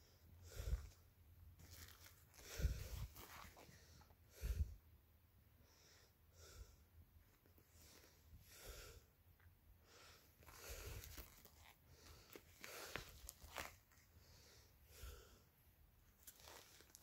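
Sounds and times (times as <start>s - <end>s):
boxing gloves rustling on blanket: 0.5s - 4.1s, 10.3s - 14.4s, 16.1s - 17.0s.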